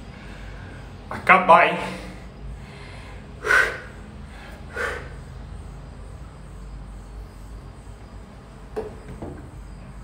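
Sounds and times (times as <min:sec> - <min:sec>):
man exhaling heavily: 0:01.9 - 0:05.3.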